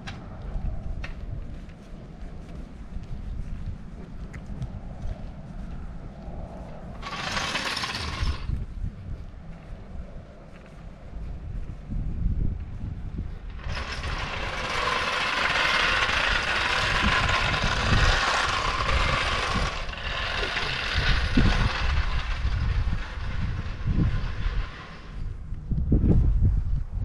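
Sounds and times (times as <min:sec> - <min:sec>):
wind buffeting microphone: 0:00.0 - 0:27.0
hissing machine noise: 0:07.0 - 0:08.6, 0:13.5 - 0:25.2.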